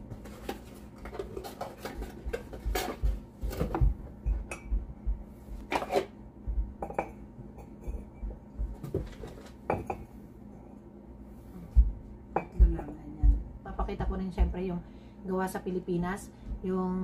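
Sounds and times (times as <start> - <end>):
mugs knocking on wooden table: 6.6 - 10.1, 11.8 - 13.0.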